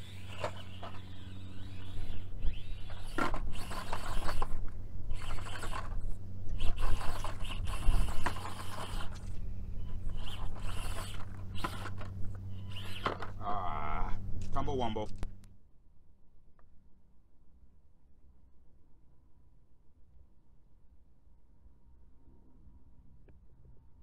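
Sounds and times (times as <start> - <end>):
rc car tyres scraping: 0.0 - 13.4
steady low hum: 0.0 - 24.0.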